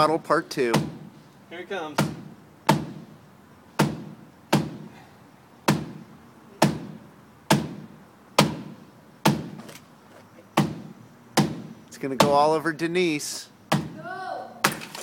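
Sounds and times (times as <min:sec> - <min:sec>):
shoe thudding against concrete wall: 0:02.0 - 0:03.1, 0:03.8 - 0:05.0, 0:05.7 - 0:09.8, 0:10.5 - 0:12.4.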